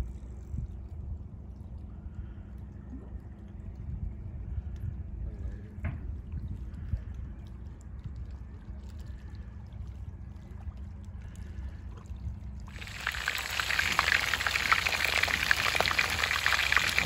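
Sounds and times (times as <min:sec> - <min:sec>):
faint low rumble: 0:00.0 - 0:17.0
fish frying in hot oil: 0:12.7 - 0:17.0.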